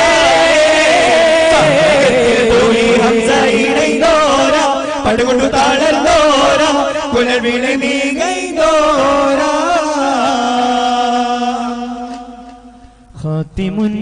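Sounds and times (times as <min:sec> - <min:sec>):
person singing ornamented line: 0:00.0 - 0:10.9
low drone: 0:01.4 - 0:05.6.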